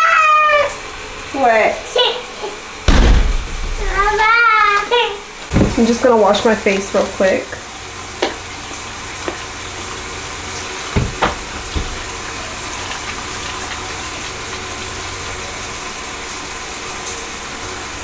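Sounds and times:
tap running into sink: 2.9s - 6.5s, 8.2s - 8.4s, 9.2s - 9.5s, 10.8s - 14.6s.

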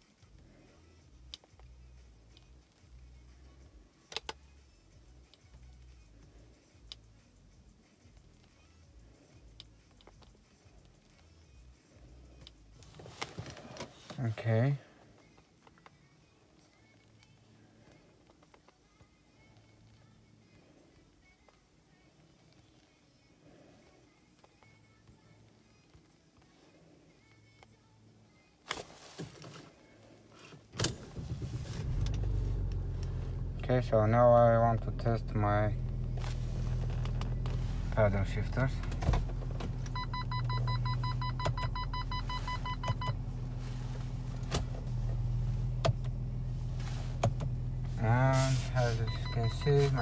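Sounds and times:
car engine idling: 30.9s - 50.0s
short electronic beeps: 39.9s - 43.2s, 49.0s - 50.0s.

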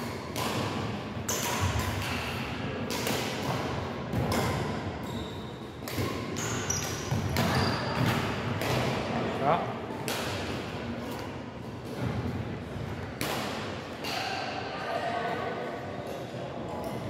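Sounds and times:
rackets striking shuttlecock: 0.0s - 4.8s, 5.8s - 9.1s
shoe squeaks: 5.0s - 5.6s, 6.4s - 8.0s.

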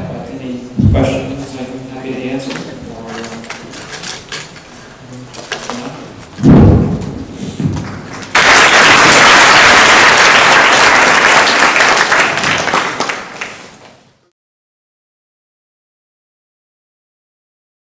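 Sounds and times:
low thump: 6.4s - 7.8s
audience applauding: 7.8s - 13.9s.

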